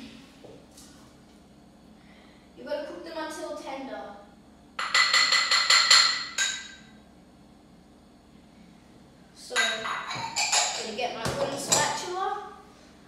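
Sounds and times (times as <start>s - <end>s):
utensil knocking on saucepan: 4.8s - 6.8s.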